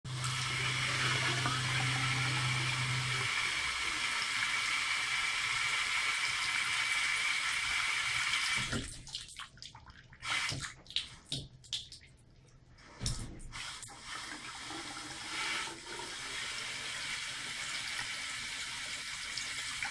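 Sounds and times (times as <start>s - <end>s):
low steady hum: 0.1s - 3.5s
water splashes and trickles: 0.1s - 4.8s, 8.1s - 14.9s, 17.8s - 19.9s
tap running into washbasin: 0.1s - 6.7s.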